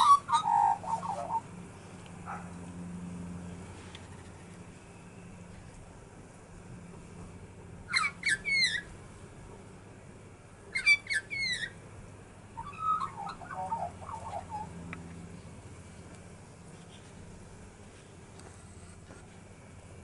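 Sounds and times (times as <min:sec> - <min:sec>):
magpies singing: 0:00.0 - 0:01.6, 0:07.9 - 0:08.9, 0:10.7 - 0:11.8, 0:12.6 - 0:15.0.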